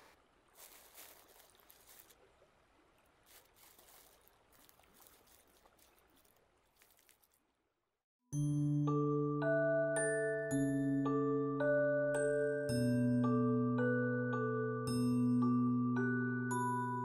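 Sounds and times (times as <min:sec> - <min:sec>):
dry straw rustling and crackling: 0:00.0 - 0:02.4, 0:03.0 - 0:07.5.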